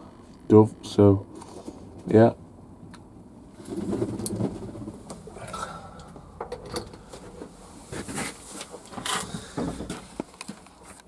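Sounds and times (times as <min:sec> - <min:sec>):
rustling and knocks of handling: 0:03.6 - 0:05.4, 0:06.2 - 0:11.0.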